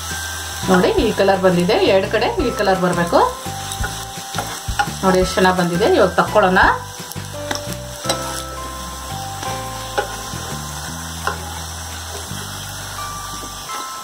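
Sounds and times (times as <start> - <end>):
oil sizzling in a frying pan: 0.0 - 14.0
metal spatula scraping a pan: 7.4 - 12.9.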